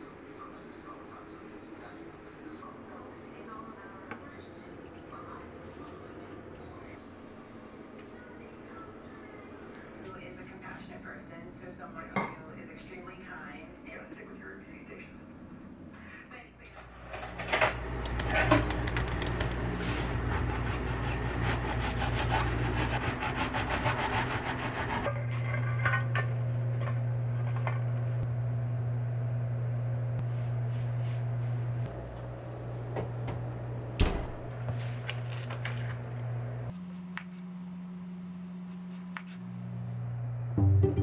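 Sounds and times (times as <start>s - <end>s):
steady low hum: 0.0s - 41.0s
rubbing and scraping: 18.3s - 26.0s.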